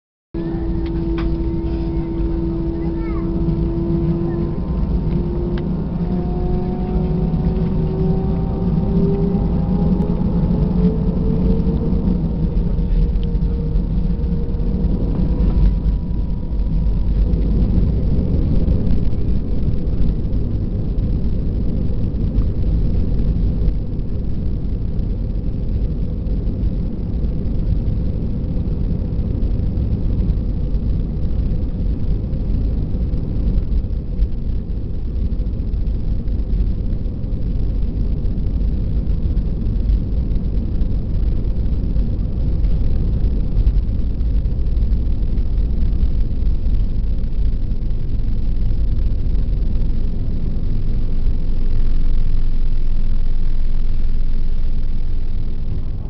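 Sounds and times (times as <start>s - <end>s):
jet engines whining and rumbling: 0.4s - 56.0s.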